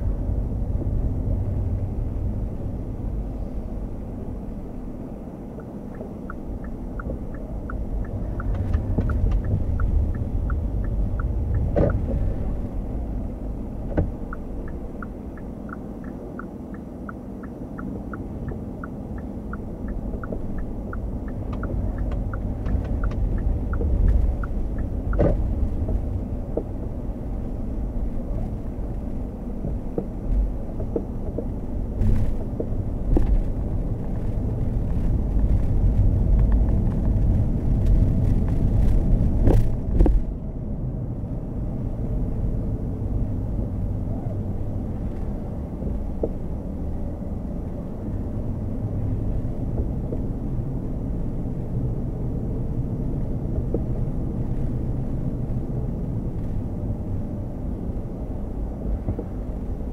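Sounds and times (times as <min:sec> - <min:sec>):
road and tyre rumble: 0:00.0 - 0:59.9
turn signal ticking: 0:05.5 - 0:27.0, 0:28.4 - 0:40.2, 0:45.0 - 0:46.5, 0:49.0 - 0:50.4, 0:53.4 - 0:54.1.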